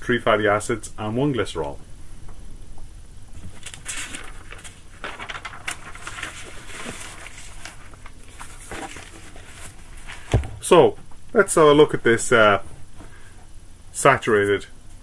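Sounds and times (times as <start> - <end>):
rustling and scuffing: 6.7 - 10.8.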